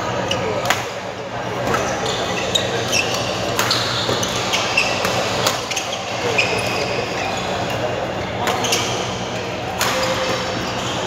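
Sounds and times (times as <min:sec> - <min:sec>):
rackets striking shuttlecock: 0:03.1 - 0:05.6, 0:09.7 - 0:10.6.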